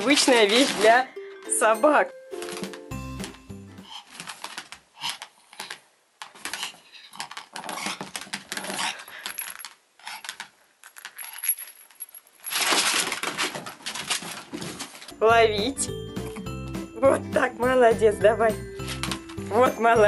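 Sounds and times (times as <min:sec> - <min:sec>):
toy balls clattering and clicking: 0:00.0 - 0:01.7, 0:02.4 - 0:03.4, 0:04.0 - 0:14.5, 0:18.8 - 0:20.0.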